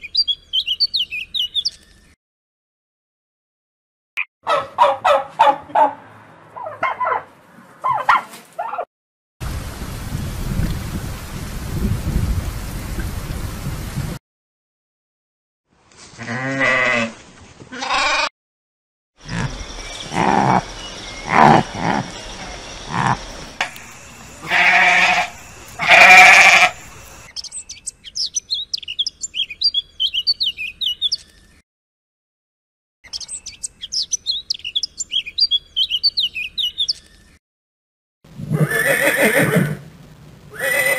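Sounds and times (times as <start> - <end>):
animal bleating: 16.2 - 18.3, 24.4 - 26.8, 38.5 - 39.8, 40.5 - 40.9
horse whinnying: 24.4 - 26.8, 38.4 - 39.8, 40.5 - 40.9.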